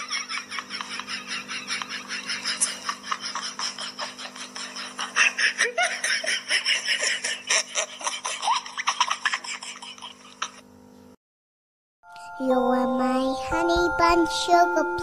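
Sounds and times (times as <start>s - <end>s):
person laughing: 0.0s - 10.6s.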